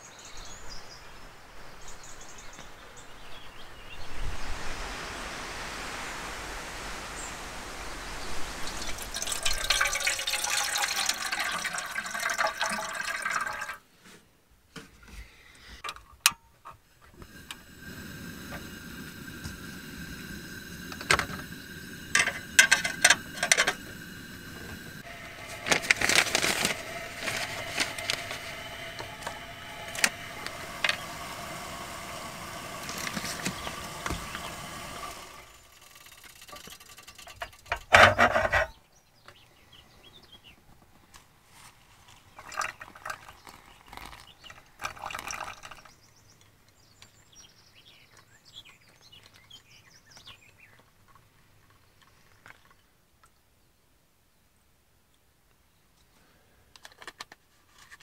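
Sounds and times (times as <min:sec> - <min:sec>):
gas stove hissing: 0:04.3 - 0:12.2, 0:17.2 - 0:36.8
water glugging into kettle: 0:08.6 - 0:13.8, 0:17.2 - 0:38.6, 0:42.3 - 0:45.9
metal kettle clatter: 0:08.8 - 0:13.8, 0:17.2 - 0:38.8, 0:42.4 - 0:45.9.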